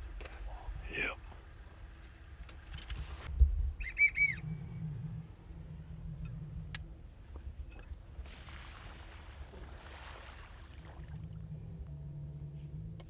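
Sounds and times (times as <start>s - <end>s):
brushing rustle: 2.8s - 3.4s
duck whistling: 3.8s - 4.6s.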